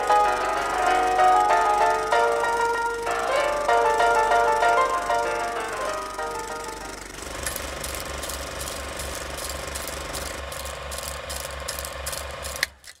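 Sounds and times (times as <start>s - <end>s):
film projector clattering: 0.0s - 13.0s.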